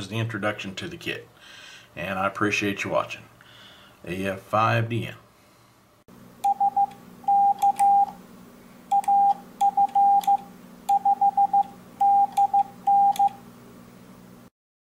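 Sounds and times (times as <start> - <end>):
morse code beeps: 6.4 - 8.2, 8.9 - 13.4.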